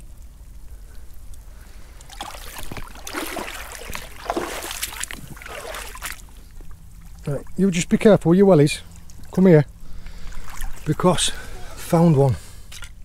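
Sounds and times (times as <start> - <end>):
seawater sloshing and splashing: 1.8 - 8.2, 8.8 - 12.0.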